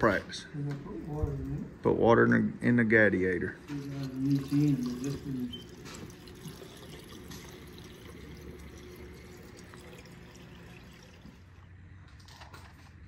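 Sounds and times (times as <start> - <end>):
water pouring into radiator: 3.8 - 11.7.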